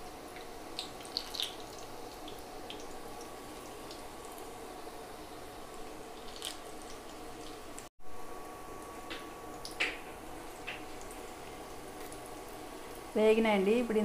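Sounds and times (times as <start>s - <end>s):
chillies sizzling in hot oil: 0.0s - 7.9s.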